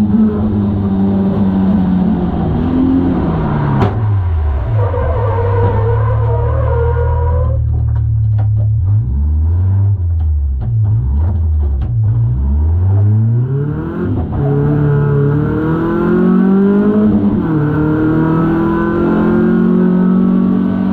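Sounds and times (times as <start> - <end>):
car engine revving: 0.0 - 20.9
clicks and rattles: 7.6 - 9.0.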